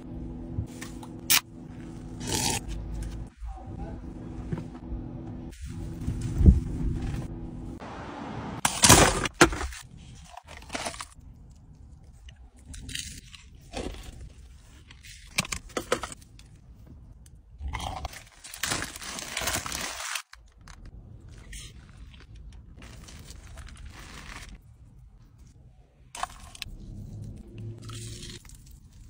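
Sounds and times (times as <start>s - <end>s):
paper food wrappers rustling: 18.1s - 24.7s.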